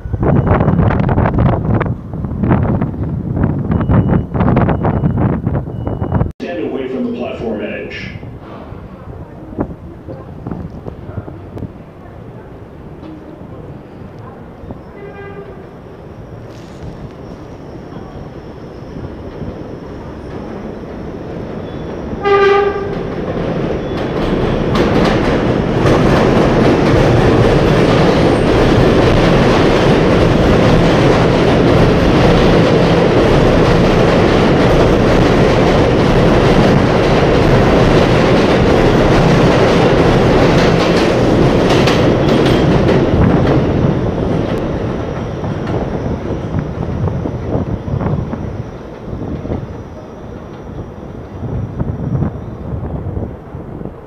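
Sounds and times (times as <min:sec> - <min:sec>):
train horn blast: 0:14.9 - 0:15.8, 0:22.2 - 0:23.1.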